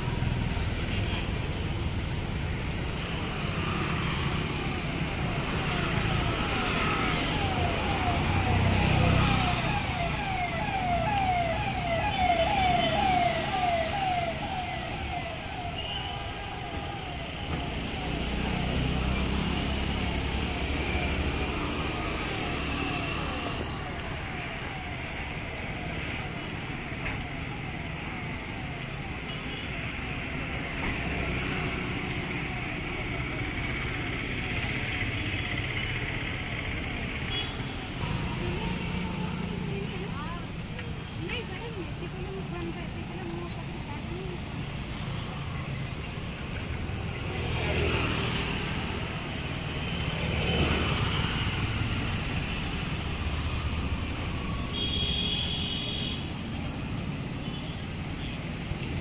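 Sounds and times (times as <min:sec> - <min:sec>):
street traffic rumble: 0:00.0 - 0:59.0
vehicle siren whooping: 0:03.4 - 0:35.1.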